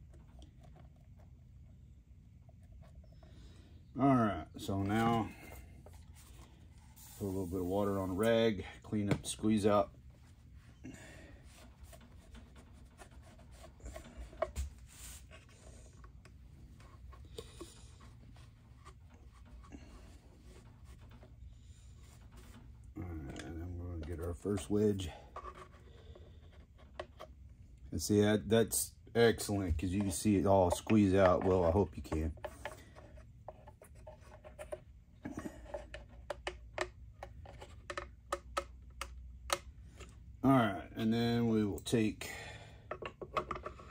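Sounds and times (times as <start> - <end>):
damp cloth rubbing on wood: 6.9 - 8.2
wooden clicks and scrapes: 11.4 - 27.4, 29.8 - 40.2, 42.9 - 43.9.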